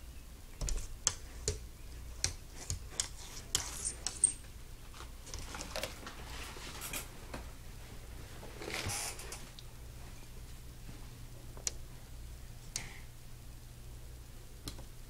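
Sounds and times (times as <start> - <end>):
claws scratching on glass: 2.2 - 4.4.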